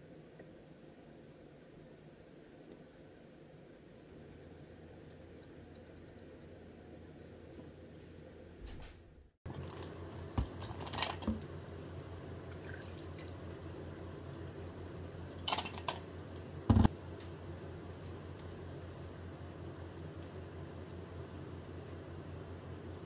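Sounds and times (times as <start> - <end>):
low hum: 0.0 - 23.0
juice pouring into a glass: 12.5 - 13.5.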